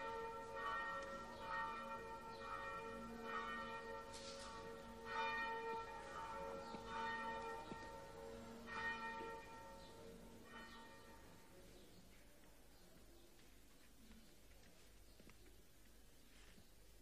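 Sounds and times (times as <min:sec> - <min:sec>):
church bells ringing: 0:00.0 - 0:11.7.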